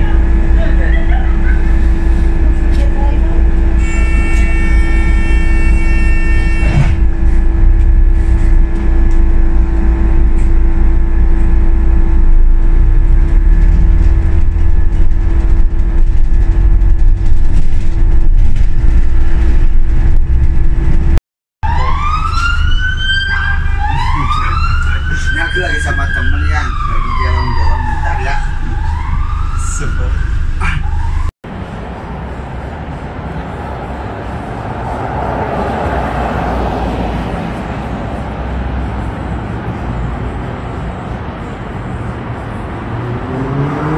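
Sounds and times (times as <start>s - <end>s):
constant hum: 0.0s - 21.2s
traffic and engine rumble: 0.0s - 43.9s
emergency vehicle siren wailing: 21.6s - 31.3s.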